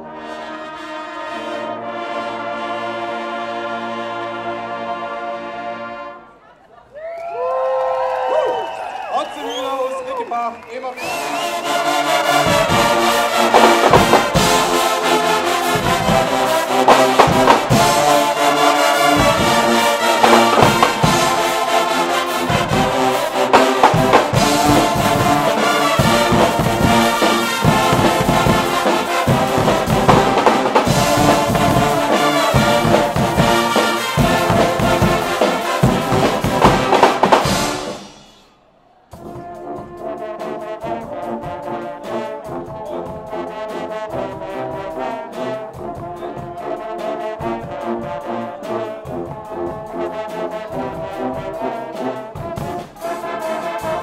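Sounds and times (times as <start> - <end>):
brass band playing: 0.0 - 6.4, 11.0 - 54.0
drum kits with cymbals: 11.0 - 54.0.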